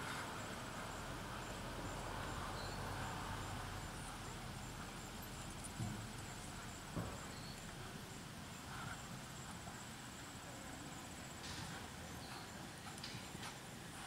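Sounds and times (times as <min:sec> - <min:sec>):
outdoor background noise: 0:00.0 - 0:14.0
hoofbeats trotting on sand: 0:11.3 - 0:14.0.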